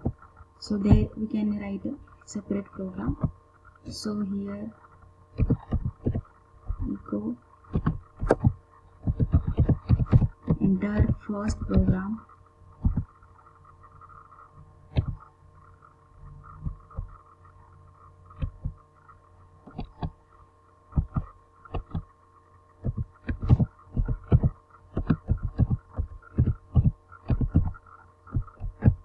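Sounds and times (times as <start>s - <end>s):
electrical hum: 0.0s - 29.0s
keyboard typing clicks: 5.4s - 7.0s, 7.7s - 12.0s, 21.0s - 22.1s.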